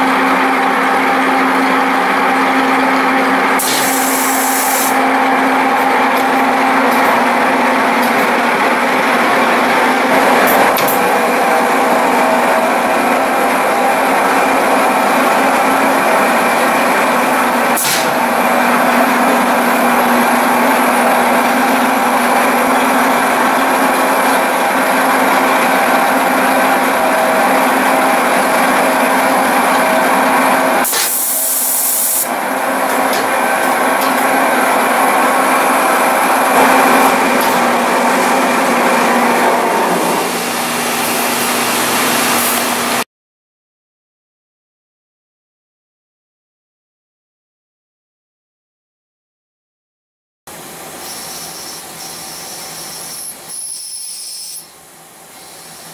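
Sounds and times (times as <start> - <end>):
lathe machine hum: 0.0 - 43.0.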